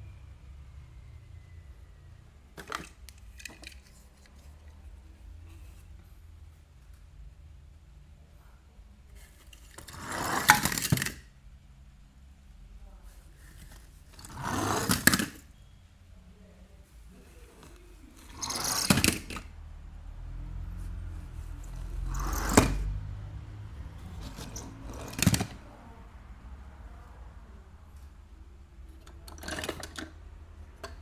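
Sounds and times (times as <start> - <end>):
toy car wheels rattling: 9.5 - 11.2, 14.2 - 15.5, 17.6 - 19.5, 21.7 - 22.9, 24.0 - 25.6, 29.2 - 30.2.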